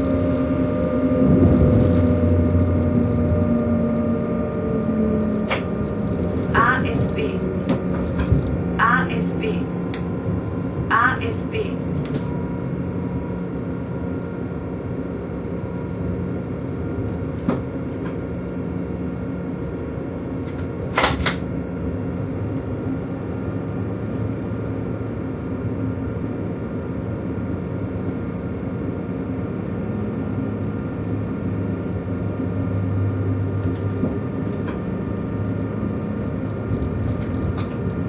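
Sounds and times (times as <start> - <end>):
locomotive cab running rumble: 0.0 - 12.4, 32.2 - 38.0
drive hums and whines: 0.0 - 38.0.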